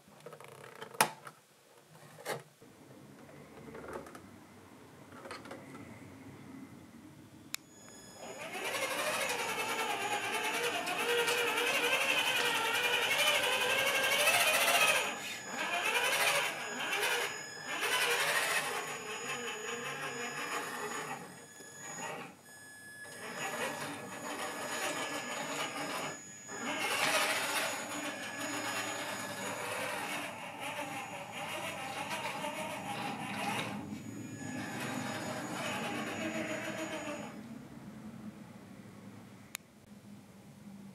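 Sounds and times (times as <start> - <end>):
electric motor and gearbox whining: 7.7 - 22.4, 23.0 - 37.4.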